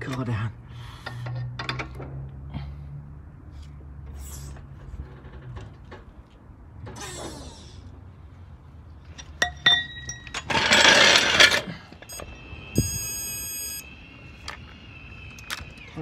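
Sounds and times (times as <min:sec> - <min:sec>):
torque wrench beeping: 0:12.0 - 0:16.0.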